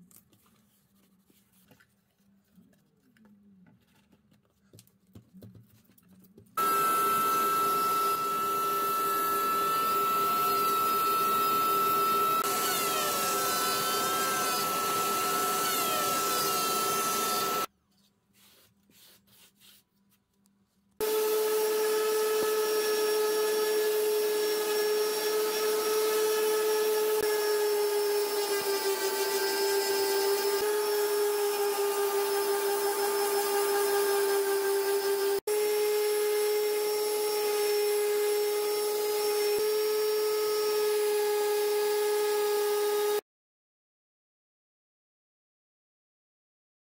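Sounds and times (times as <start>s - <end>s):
electric sander on wood: 6.6s - 17.7s, 21.0s - 43.2s.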